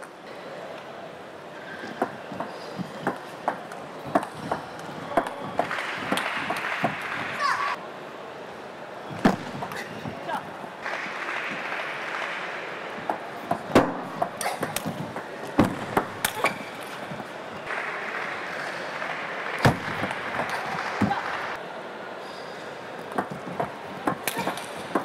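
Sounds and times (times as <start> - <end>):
arena crowd murmur: 0.0 - 25.0.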